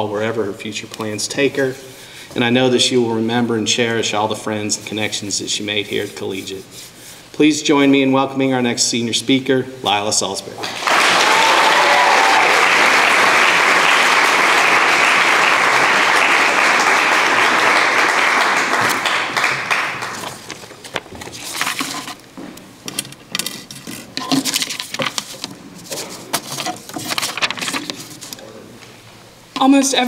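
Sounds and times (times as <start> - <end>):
audience applause: 10.6 - 20.4
paper rustling: 20.0 - 22.3, 22.9 - 28.4.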